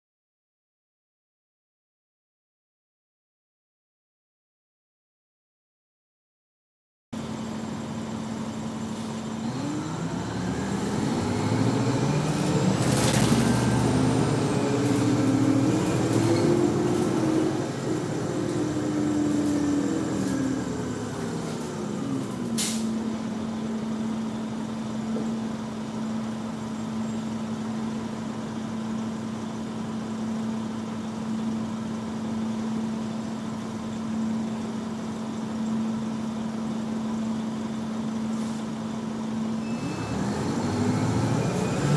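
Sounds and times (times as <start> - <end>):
bus diesel engine: 7.2 - 41.9
brief hiss: 22.6 - 23.0.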